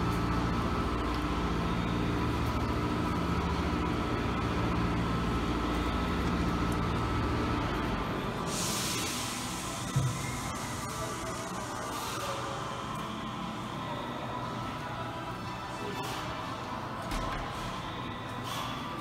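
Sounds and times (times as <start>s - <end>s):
low mechanical hum: 0.0s - 19.0s
loud hiss: 8.5s - 11.5s.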